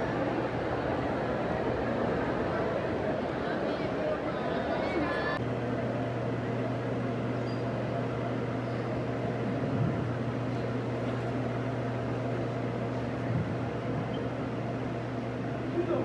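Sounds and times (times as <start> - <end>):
electric floor fans: 0.0 - 16.0.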